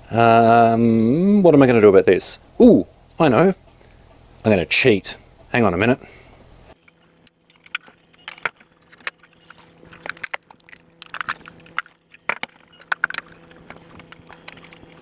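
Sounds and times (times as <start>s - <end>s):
handling clicks and rattles: 6.8s - 15.0s.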